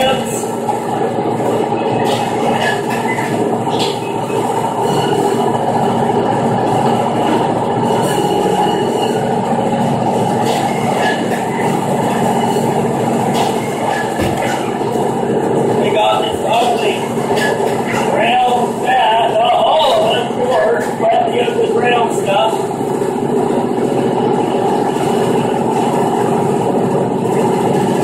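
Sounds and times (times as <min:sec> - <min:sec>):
band saw cutting meat: 0:10.2 - 0:15.0, 0:15.9 - 0:22.9.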